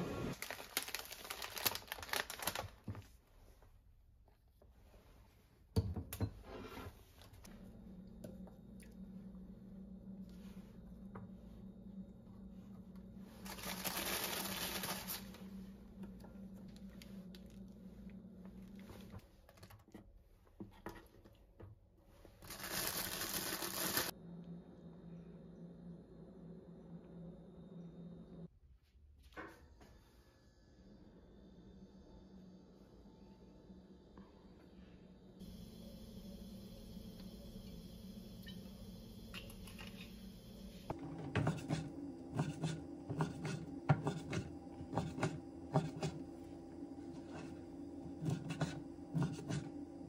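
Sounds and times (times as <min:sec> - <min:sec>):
plastic packaging crinkling: 0:00.3 - 0:02.9, 0:13.4 - 0:15.4, 0:22.4 - 0:24.1
low steady hum: 0:03.4 - 0:20.5, 0:24.1 - 0:28.5, 0:29.9 - 0:50.0.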